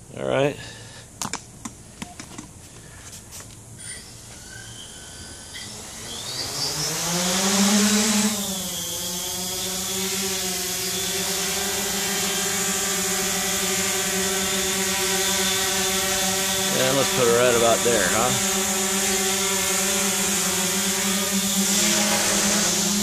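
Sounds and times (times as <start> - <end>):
drone motors buzzing: 3.6 - 23.0.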